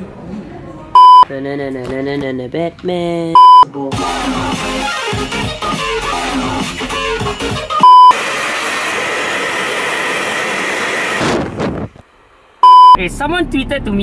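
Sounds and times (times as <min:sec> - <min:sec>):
electronic beep: 0:01.0 - 0:01.3, 0:03.4 - 0:03.6, 0:07.8 - 0:08.2, 0:12.6 - 0:13.0.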